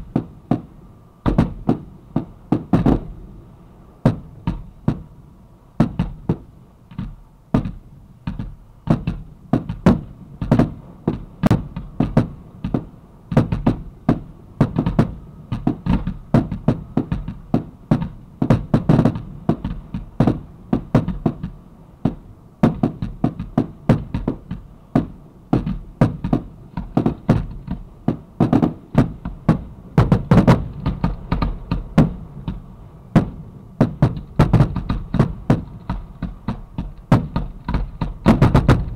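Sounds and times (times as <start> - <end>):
fireworks bursting with sharp bangs: 0.0 - 3.3, 4.0 - 5.2, 5.8 - 38.9
fireworks shells launching: 8.9 - 32.2, 33.1 - 38.9.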